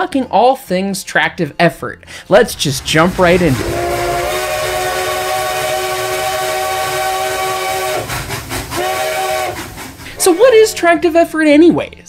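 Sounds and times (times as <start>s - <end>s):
steam locomotive whistle: 2.5s - 10.4s.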